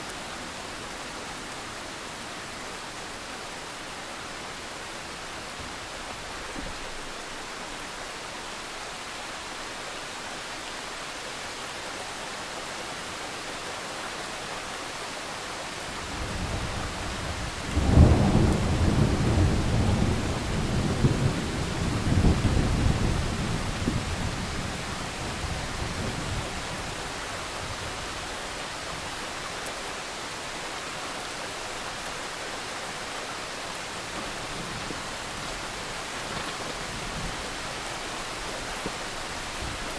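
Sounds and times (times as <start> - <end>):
steady rain: 0.0 - 39.9
thunder rumble and crack: 16.3 - 24.7.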